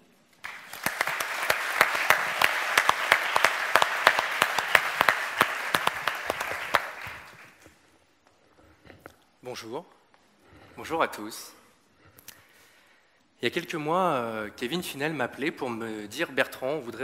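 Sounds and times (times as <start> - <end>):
audience applause: 0.4 - 7.6.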